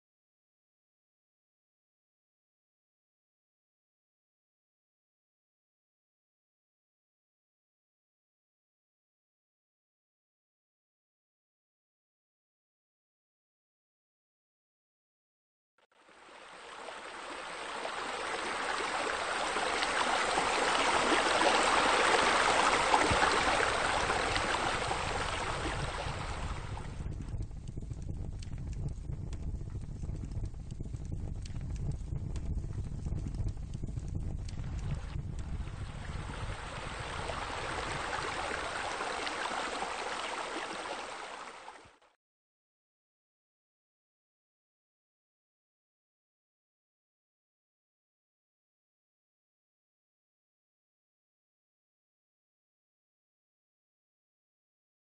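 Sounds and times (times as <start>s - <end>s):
water splashing in a fountain: 16.0s - 27.2s, 34.5s - 42.0s.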